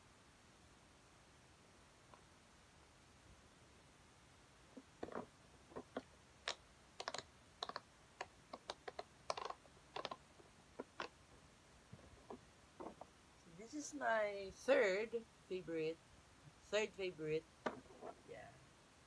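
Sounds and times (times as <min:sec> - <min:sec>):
plastic fidget toy clicks: 0:05.9 - 0:10.2.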